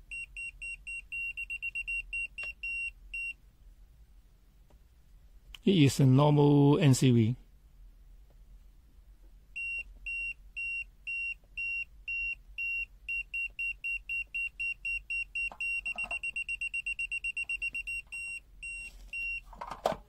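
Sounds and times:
voltage detector beeping: 9.6s - 19.4s.

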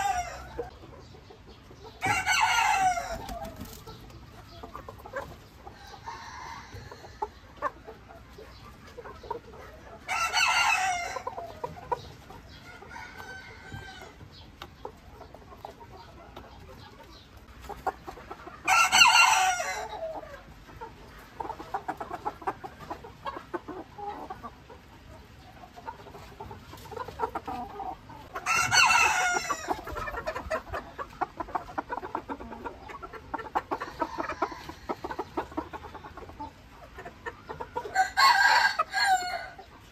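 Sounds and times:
rooster crowing: 0.0s - 0.6s, 2.0s - 3.3s, 5.9s - 7.1s, 12.8s - 14.2s, 28.4s - 29.7s, 37.9s - 39.6s.

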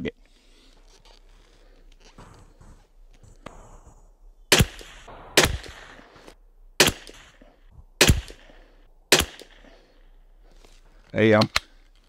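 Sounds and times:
rifle shots with echo: 4.5s - 9.9s.

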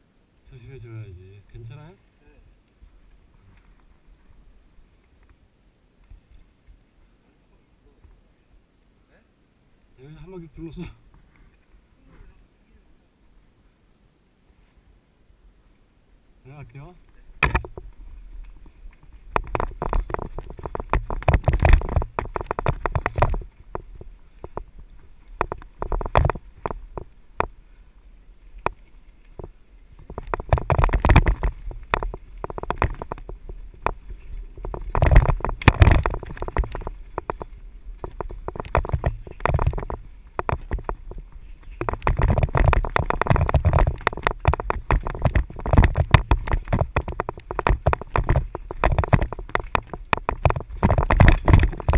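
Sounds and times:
wind rumble on microphone: 16.7s - 51.9s
mountain bike rattling on dirt trail: 17.2s - 51.9s.

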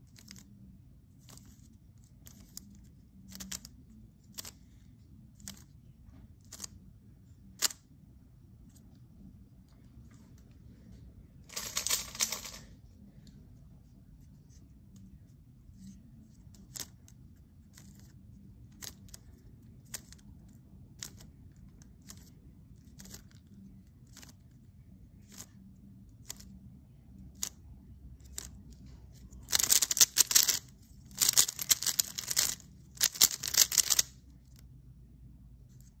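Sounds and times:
puzzle cube turns clicking: 1.2s - 4.8s, 16.5s - 24.6s, 26.2s - 26.6s, 28.2s - 34.6s.

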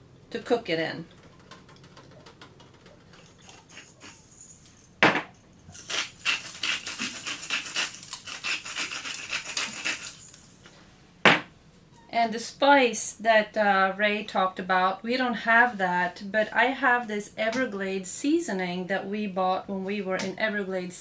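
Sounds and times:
spice grinder grinding clicks: 5.8s - 10.4s
sharp knock on counter: 11.3s - 11.5s.

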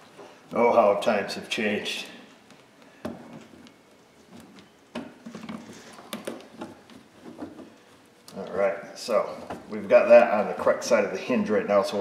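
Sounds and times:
sharp clicks and knocks: 2.4s - 8.5s.

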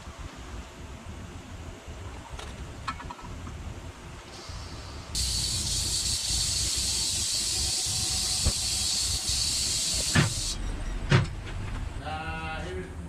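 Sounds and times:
high-pitched hiss: 4.4s - 10.6s.

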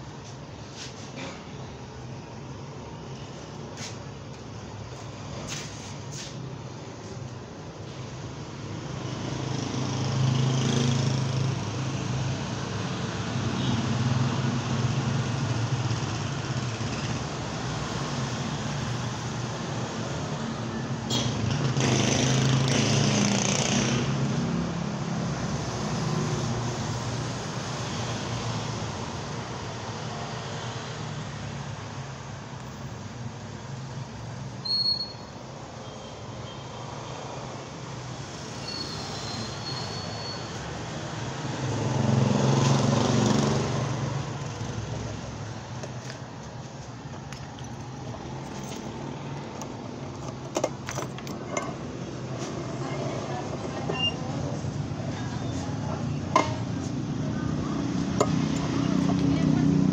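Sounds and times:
traffic engine hum: 35.4s - 59.9s.

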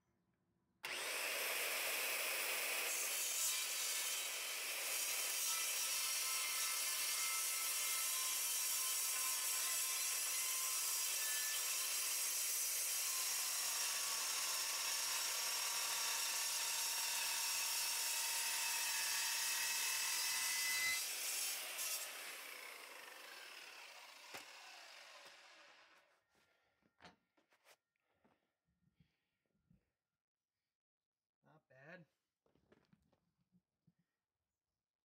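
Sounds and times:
saw blade winding down: 0.8s - 2.9s, 20.8s - 26.0s.

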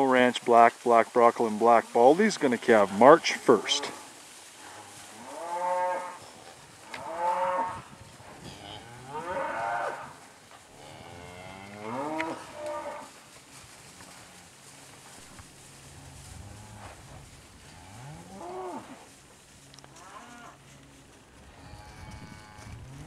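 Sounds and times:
cattle mooing: 10.8s - 13.1s, 20.0s - 20.6s, 21.6s - 23.0s.

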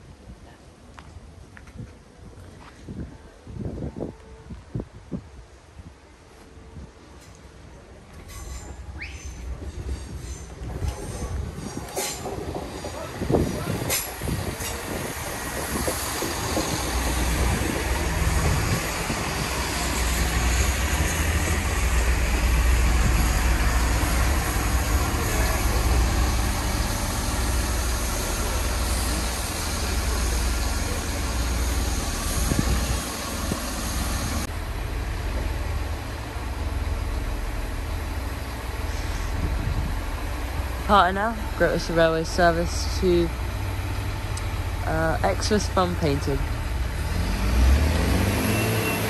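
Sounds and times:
train running noise: 0.0s - 49.0s
diesel engine rumble: 7.4s - 49.0s.

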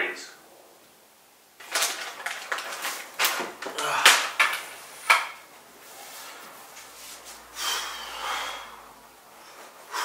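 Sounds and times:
man breathing forcefully: 3.6s - 5.1s, 7.4s - 10.0s.

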